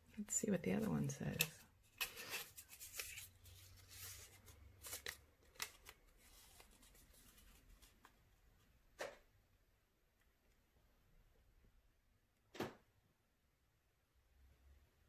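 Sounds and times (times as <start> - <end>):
paper slip rustling: 0.7 - 8.2.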